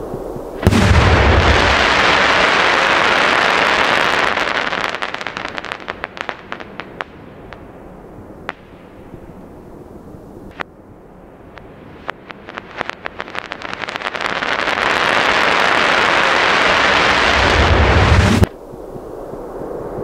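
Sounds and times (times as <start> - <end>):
firework crackling: 0.0 - 7.8, 11.4 - 18.5
firework shell deep boom: 0.6 - 2.3.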